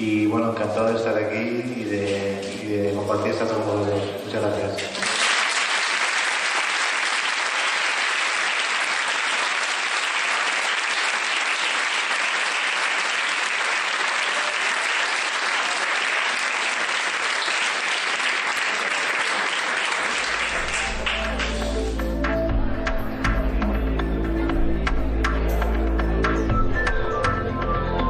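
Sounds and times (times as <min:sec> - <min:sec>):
audience applauding: 0:04.9 - 0:22.1.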